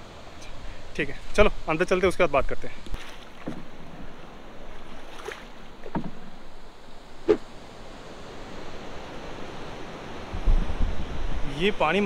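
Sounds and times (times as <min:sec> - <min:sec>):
river water rushing: 0:02.8 - 0:12.0
knocks against boat: 0:03.0 - 0:04.1, 0:05.8 - 0:06.4.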